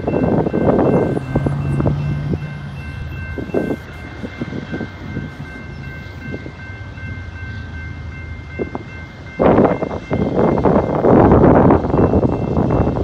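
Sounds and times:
crossing bell ringing: 0:00.0 - 0:13.0
wind on microphone: 0:08.6 - 0:13.0.

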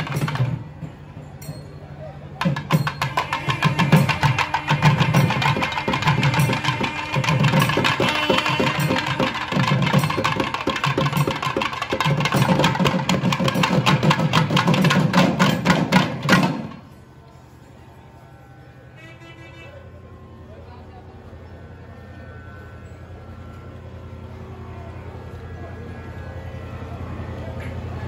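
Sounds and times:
thavil drums playing fast rhythm: 0:02.4 - 0:16.8.

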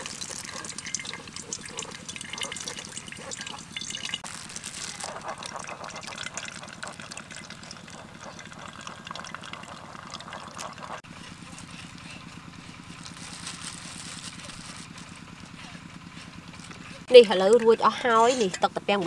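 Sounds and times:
juice trickling and dripping: 0:00.0 - 0:11.1.

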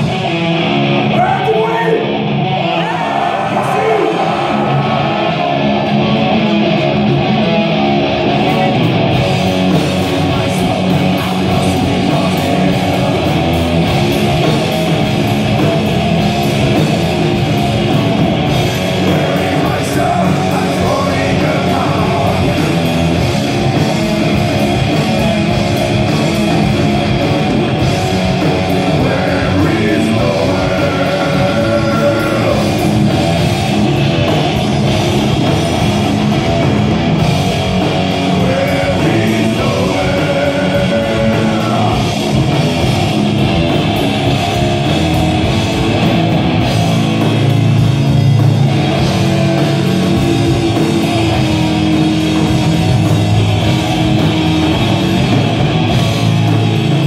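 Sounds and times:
bass guitar: 0:00.0 - 0:57.0
drum kit: 0:00.0 - 0:57.0
heavy electric guitars: 0:00.0 - 0:57.0.

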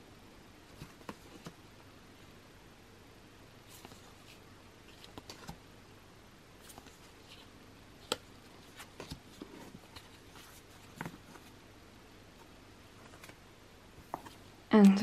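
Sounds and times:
paper rustling: 0:03.7 - 0:05.6, 0:06.6 - 0:11.5.

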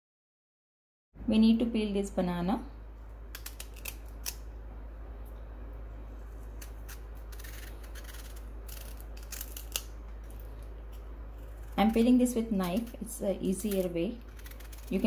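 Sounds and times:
knife cutting banana skin: 0:03.3 - 0:04.4, 0:06.3 - 0:15.0.

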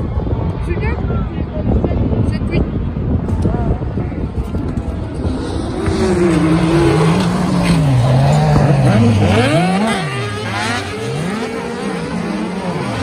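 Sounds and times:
racing buggy engines revving: 0:02.8 - 0:13.0.

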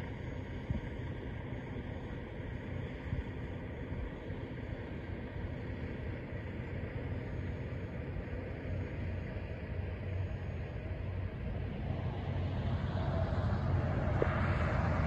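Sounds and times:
highway traffic rumble: 0:00.0 - 0:15.0.

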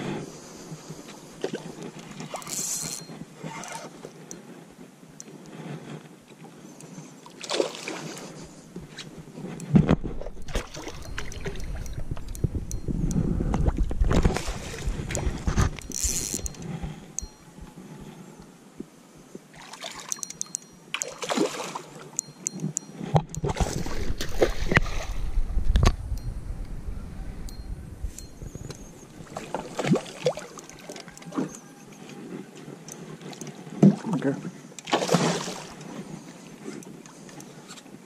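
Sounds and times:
fishing gear knocking and clattering: 0:09.6 - 0:17.4, 0:20.0 - 0:21.2
fish splashing at surface: 0:34.9 - 0:35.8.

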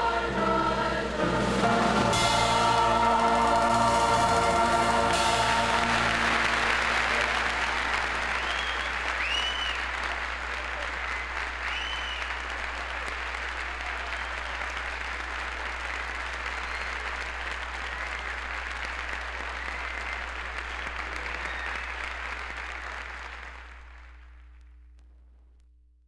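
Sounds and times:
audience applauding: 0:00.0 - 0:24.4.

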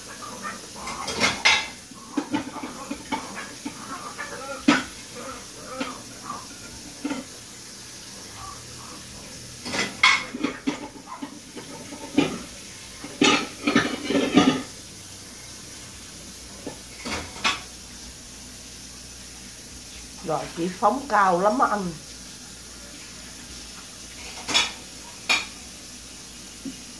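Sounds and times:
puppies growling and yapping: 0:00.0 - 0:07.3, 0:08.0 - 0:12.6.

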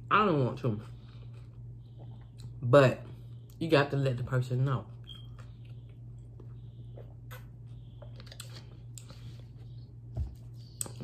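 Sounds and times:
low hum: 0:00.0 - 0:11.0
person chewing food: 0:00.8 - 0:02.6, 0:05.0 - 0:11.0.

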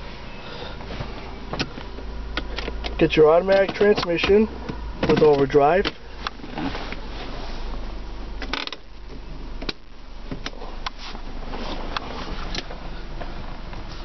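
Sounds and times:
idling car engine hum: 0:00.0 - 0:14.0
gear shifter clicks and plastic knocks: 0:01.5 - 0:06.6, 0:08.4 - 0:11.0.

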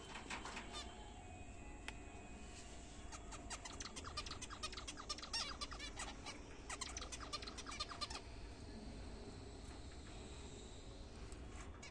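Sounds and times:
finches calling: 0:03.1 - 0:08.5.

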